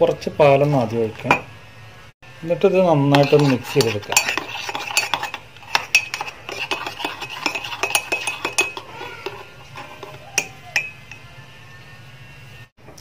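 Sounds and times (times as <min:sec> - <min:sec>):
metal spoon clinking in mug: 0:03.1 - 0:11.3.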